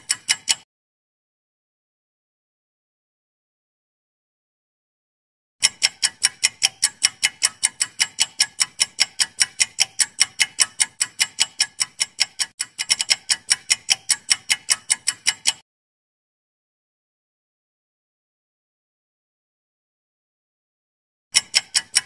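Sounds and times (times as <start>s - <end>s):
clock ticking: 0.0s - 0.6s, 5.6s - 15.6s, 21.3s - 22.0s.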